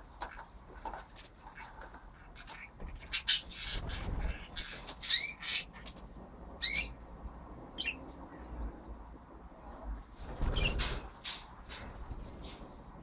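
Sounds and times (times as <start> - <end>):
budgerigars chirping and squawking: 1.5 - 6.0, 6.6 - 7.0, 7.8 - 8.0, 10.5 - 11.5.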